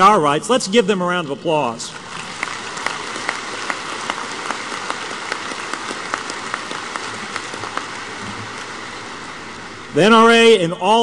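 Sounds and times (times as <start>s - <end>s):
audience applauding: 2.0s - 9.5s
sharp individual claps: 2.2s - 8.7s.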